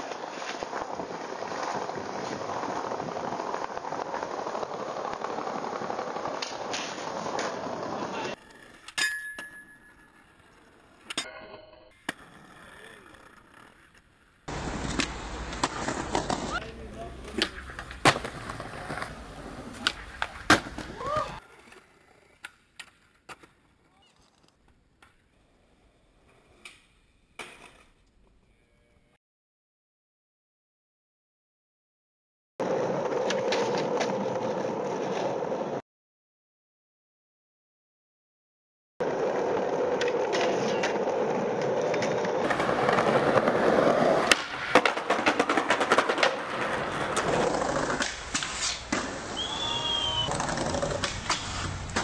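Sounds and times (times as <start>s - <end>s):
skateboard clacks: 0.0s - 11.2s, 12.0s - 25.4s, 39.1s - 52.0s
skateboard rolling on concrete: 0.0s - 29.1s, 32.6s - 35.8s, 39.0s - 52.0s.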